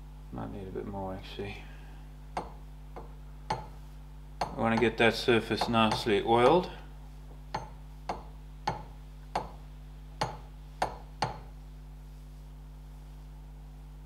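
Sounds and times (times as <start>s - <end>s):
low electrical hum: 0.0s - 14.0s
fingers knocking on metal hub: 2.4s - 3.8s, 4.4s - 6.7s, 7.5s - 9.6s, 10.2s - 11.5s.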